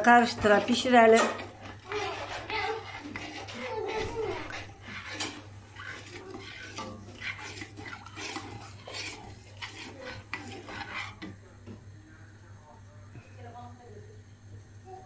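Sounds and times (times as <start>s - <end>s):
spoon scraping a metal pot: 0.0s - 11.4s.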